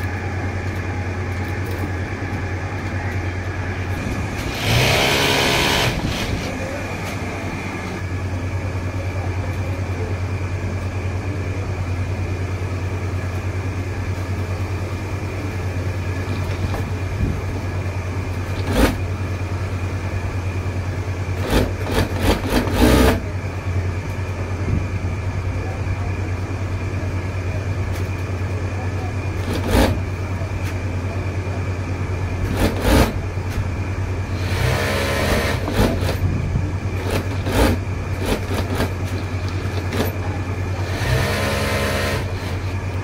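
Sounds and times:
sewing machine motor humming: 0.0 - 8.0, 18.5 - 19.1, 21.3 - 23.3, 29.3 - 30.2, 32.4 - 33.2, 34.2 - 36.3, 36.9 - 43.0
needle stitching clatter: 18.5 - 19.0, 21.4 - 23.2, 29.4 - 30.0, 32.4 - 33.2, 37.0 - 40.3.

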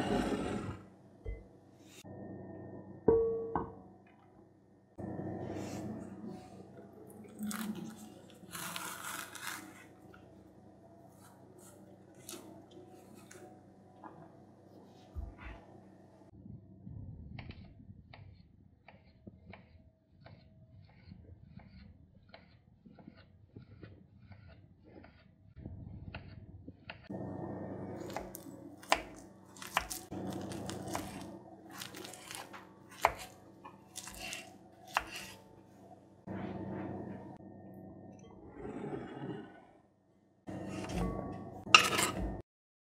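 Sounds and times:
banana peel tearing: 7.3 - 9.9, 29.6 - 33.2.

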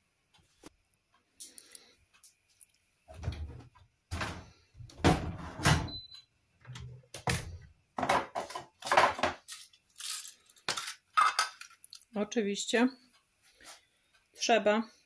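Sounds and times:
kitchen things clattering: 7.2 - 12.0.

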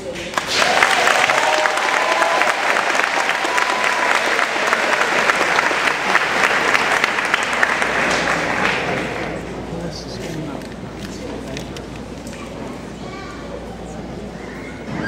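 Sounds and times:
audience clapping: 0.0 - 9.4.

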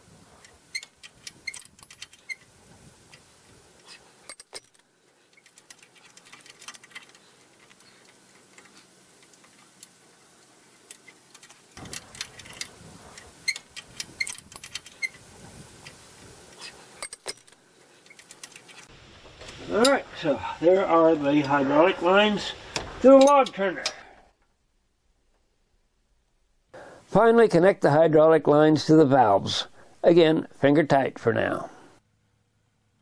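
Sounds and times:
metallic clicks of hose fittings: 0.4 - 2.5, 3.1 - 15.2, 15.8 - 18.9.

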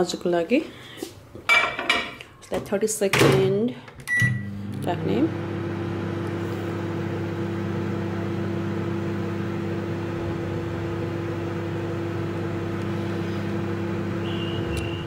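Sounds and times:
microwave oven humming: 4.0 - 15.0
high beep: 4.1 - 4.5.

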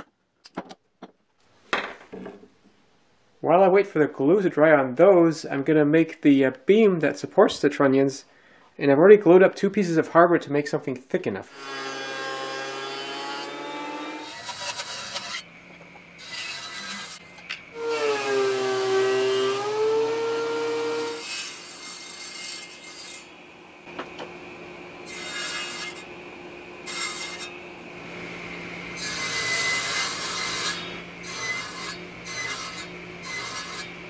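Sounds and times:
table saw cutting wood: 11.5 - 15.5, 16.2 - 23.3, 25.0 - 26.2, 26.8 - 34.0.

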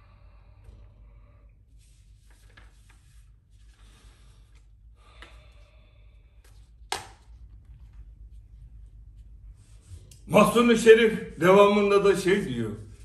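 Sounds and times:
paper rustling: 1.8 - 4.2.

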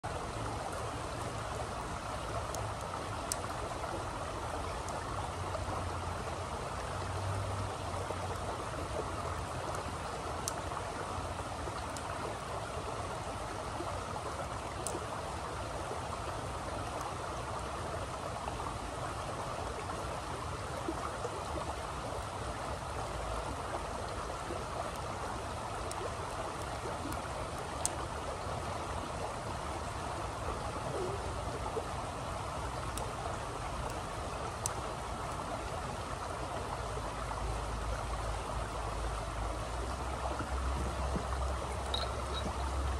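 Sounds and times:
creek water running over rocks: 0.0 - 42.9
faint sharp clicks: 2.5 - 3.6, 14.7 - 15.0.

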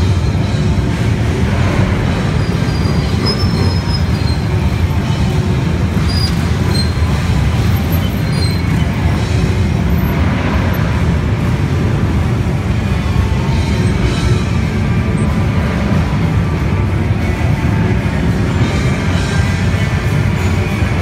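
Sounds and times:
motorcycle engines rumbling: 0.0 - 21.0.

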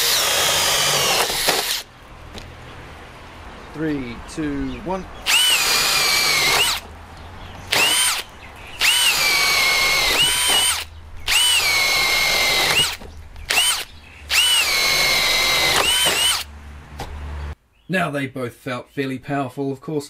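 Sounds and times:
cordless drill boring into wood: 0.0 - 1.9, 5.2 - 6.8, 7.7 - 16.5.

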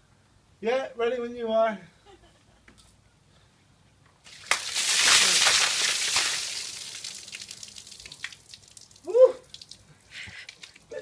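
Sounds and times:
water splashing onto stone paving: 4.2 - 11.0
water trickling and dripping: 4.3 - 11.0.

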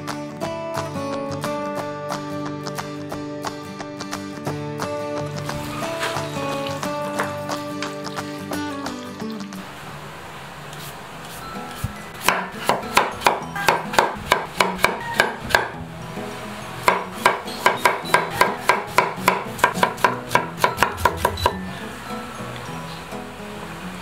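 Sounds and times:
background music: 0.0 - 9.6, 11.3 - 24.0
knife chopping on wooden board: 12.2 - 15.8, 16.8 - 21.6.

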